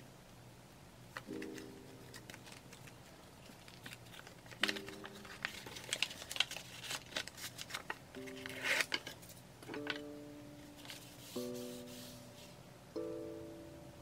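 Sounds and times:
paper and card rustling: 1.2 - 10.0, 10.6 - 12.5
soft music notes: 8.1 - 14.0.

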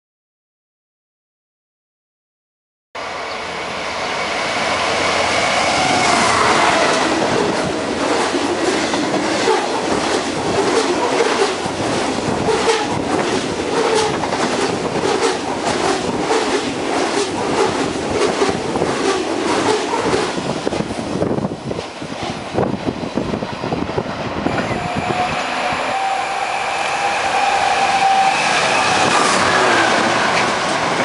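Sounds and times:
freight train rumble: 3.0 - 31.0
wheels clacking over rail joints: 29.0 - 31.0.

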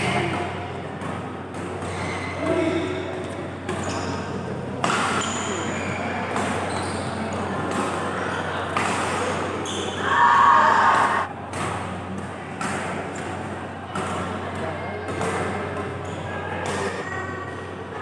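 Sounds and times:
rackets striking shuttlecock: 0.0 - 2.4, 3.4 - 8.0, 8.6 - 9.6, 10.9 - 17.0
loud shout: 9.9 - 11.3.

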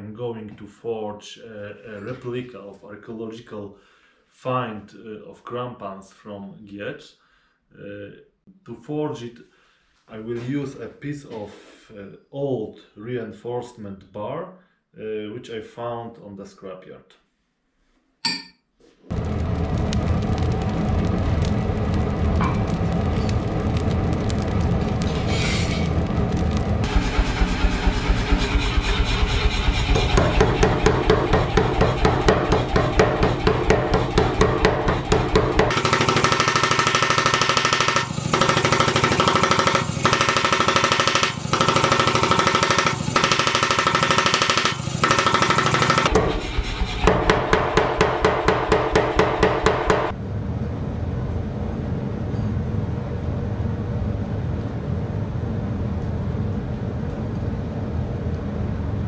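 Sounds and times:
power hammer pounding steel: 26.8 - 50.2.

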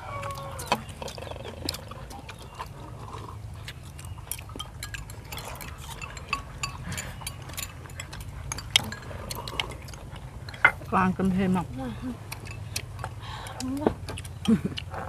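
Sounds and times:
chopsticks clinking on ceramic bowls: 3.6 - 15.0.

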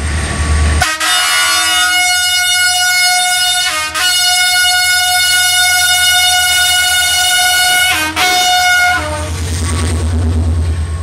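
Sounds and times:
locomotive rumbling past: 0.0 - 11.0
locomotive horn blast: 0.8 - 9.4.

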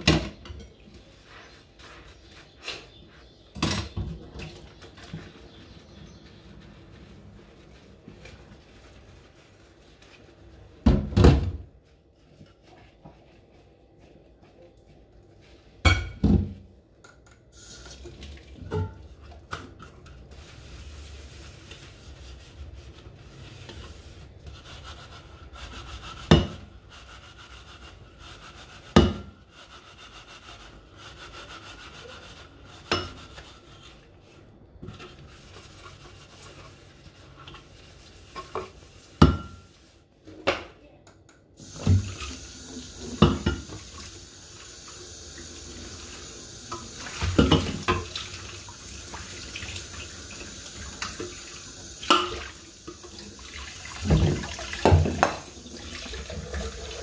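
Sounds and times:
dishes clanking against steel sink: 46.7 - 48.2, 52.0 - 53.2.

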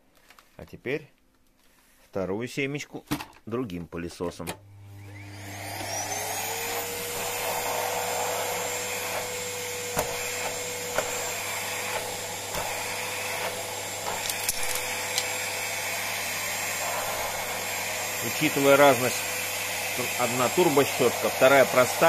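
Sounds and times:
vacuum cleaner running: 4.5 - 22.0.

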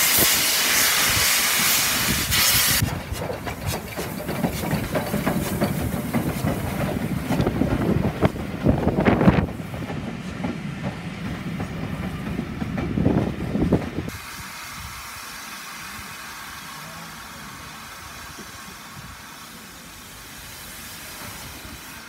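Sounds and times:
steam hissing: 0.0 - 22.0
train wheels clattering over rails: 2.8 - 14.2.

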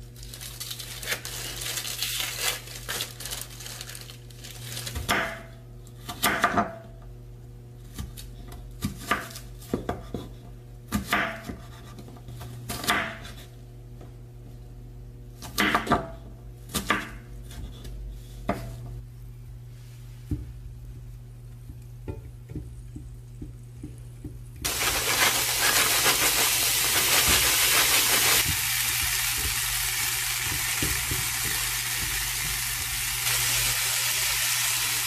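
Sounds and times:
knife chopping on wooden board: 6.1 - 6.8, 8.8 - 13.4, 15.4 - 18.8, 30.4 - 32.6.

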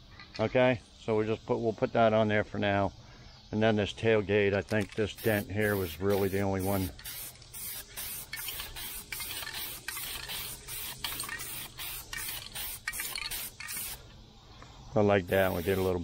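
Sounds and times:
spray paint can hissing: 5.1 - 14.0, 15.2 - 16.0.

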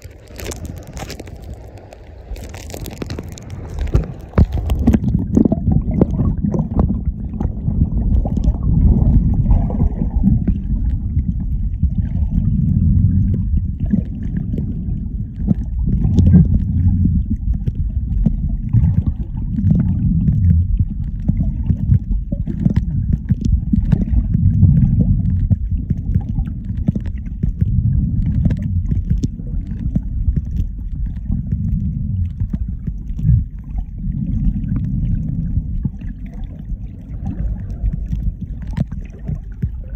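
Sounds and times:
low underwater rumble: 0.0 - 39.9
faint ticks: 20.4 - 36.6.

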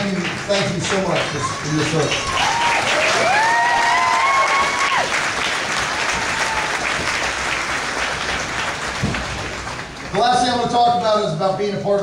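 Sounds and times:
crowd applauding: 0.0 - 12.0
high call from crowd: 1.2 - 7.4.

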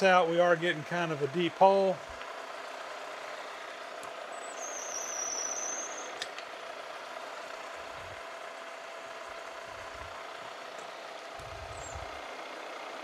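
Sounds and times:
machine spindle running: 0.0 - 13.0
high squeal from drill bit: 4.4 - 6.2
sharp click: 6.2 - 6.5.

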